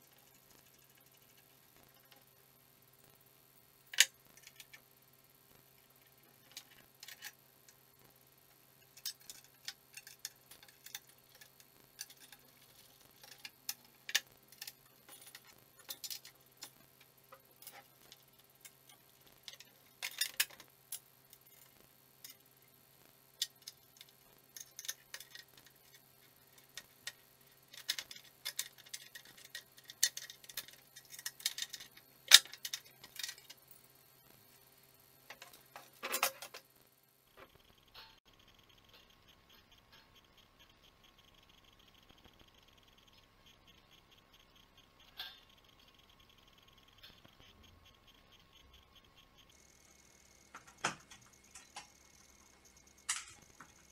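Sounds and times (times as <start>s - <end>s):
metallic clicks of wrench and bolts: 8.8s - 22.4s, 23.4s - 33.7s, 47.0s - 53.9s.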